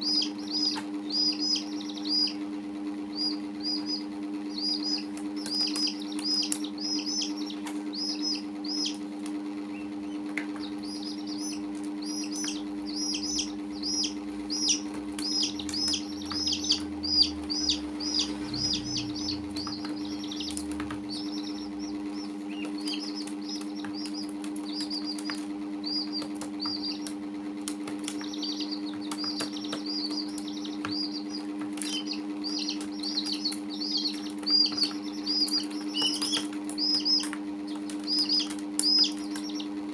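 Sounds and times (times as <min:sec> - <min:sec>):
chicks and duckling peeping: 0:00.0 - 0:39.9
steady low hum: 0:00.0 - 0:39.9.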